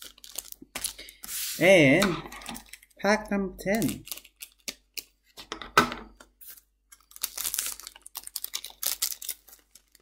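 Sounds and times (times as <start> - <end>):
foil wrapper crinkling and tearing: 0.0 - 1.4, 2.4 - 3.0, 3.7 - 5.2, 6.4 - 10.0.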